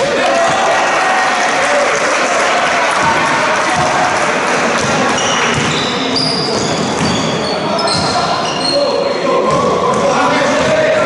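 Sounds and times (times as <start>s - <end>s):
echoing voices: 0.0s - 11.0s
basketball bouncing on court: 0.4s - 0.8s, 3.0s - 4.1s, 4.7s - 8.4s, 9.5s - 11.0s
shoes squeaking on floor: 4.8s - 9.6s.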